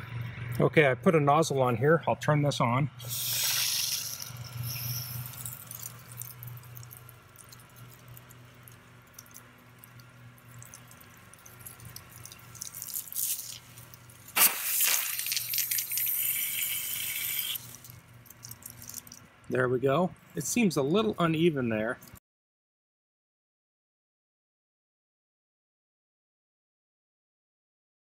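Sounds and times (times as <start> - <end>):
low steady hum: 0.0 - 22.2
hiss of spraying water: 3.0 - 5.8, 12.7 - 17.7
water running into hose: 3.0 - 19.2.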